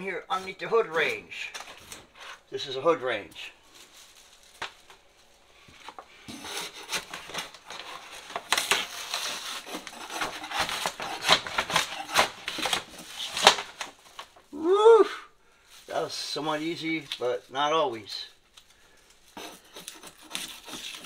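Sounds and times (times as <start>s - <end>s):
wallpaper scraping and ripping: 6.2s - 14.5s, 19.3s - 21.0s.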